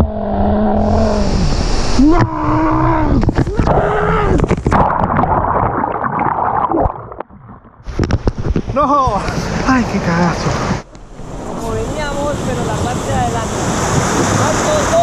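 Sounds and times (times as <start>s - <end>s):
rushing splashing river water: 4.5s - 15.0s.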